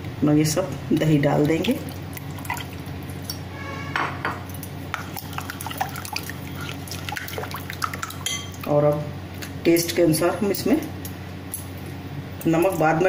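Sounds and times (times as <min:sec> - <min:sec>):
wet sloshing: 0:01.2 - 0:03.4, 0:04.5 - 0:08.6
brief squeak: 0:03.5 - 0:04.1.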